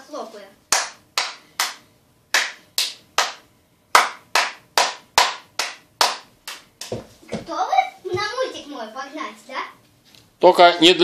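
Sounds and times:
child clapping: 0.7 - 7.0.

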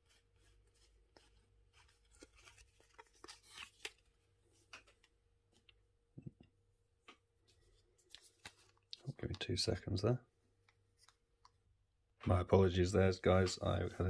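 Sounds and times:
cards clicking and rustling: 0.8 - 5.7, 8.0 - 9.1.

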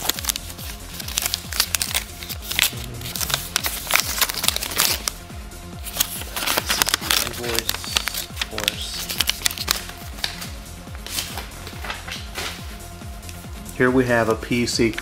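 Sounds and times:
paper crinkling and rustling: 0.0 - 5.1, 5.8 - 12.7
background music with beat: 0.0 - 15.0.

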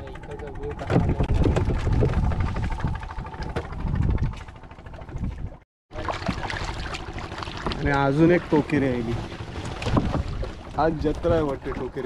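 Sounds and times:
wind buffeting microphone: 0.6 - 5.6, 7.7 - 12.0.

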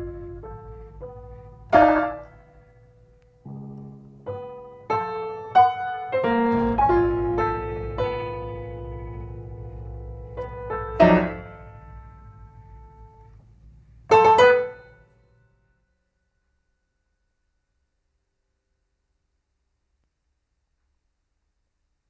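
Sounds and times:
grand piano notes and chords: 0.0 - 15.7.

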